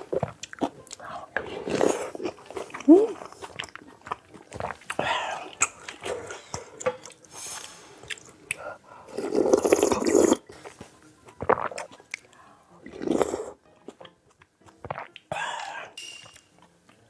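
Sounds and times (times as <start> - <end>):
chewing with wet mouth clicks: 2.2 - 8.7
loud slurp of broth: 9.1 - 10.4, 12.9 - 13.6.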